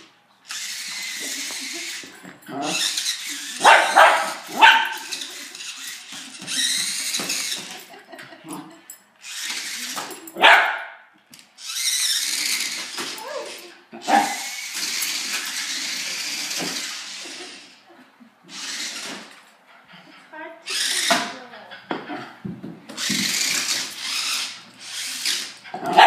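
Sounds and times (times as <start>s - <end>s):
toy car electric motor whirring: 0.0s - 8.0s, 9.2s - 10.4s, 11.4s - 17.8s, 18.5s - 19.4s, 20.6s - 21.6s, 22.9s - 26.0s
dog barking: 3.6s - 5.0s, 10.4s - 11.0s, 14.1s - 14.4s, 25.8s - 26.0s.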